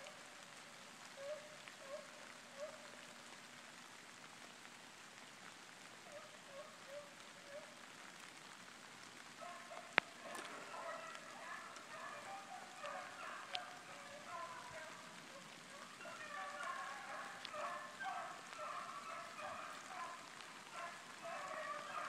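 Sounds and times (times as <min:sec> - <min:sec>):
rain on leaves: 0:00.0 - 0:22.0
distant hounds yelping: 0:01.2 - 0:03.0, 0:06.0 - 0:07.8, 0:09.4 - 0:22.0.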